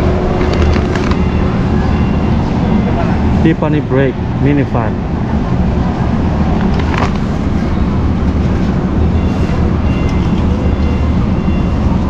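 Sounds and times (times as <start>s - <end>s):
distant bustle of shoppers: 0.0s - 12.0s
ventilation hum: 0.0s - 12.0s.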